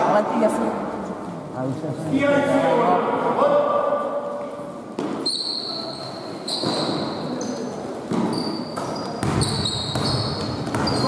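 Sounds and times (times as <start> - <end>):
sneakers squeaking on floor: 5.0 - 11.0
basketball bouncing on hardwood: 9.2 - 11.0.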